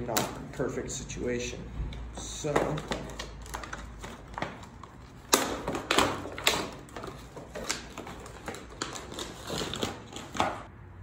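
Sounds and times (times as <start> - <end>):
packaging crackling and clicking: 2.4 - 10.7.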